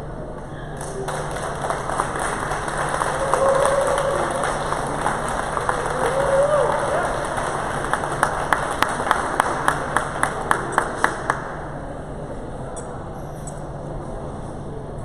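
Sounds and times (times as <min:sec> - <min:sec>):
indoor hall hum and murmur: 0:00.0 - 0:15.0
sharp hand claps: 0:00.8 - 0:11.8.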